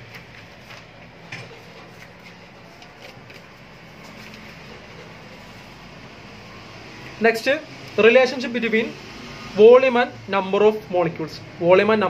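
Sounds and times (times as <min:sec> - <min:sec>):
paper pages rustling: 0:00.0 - 0:05.7.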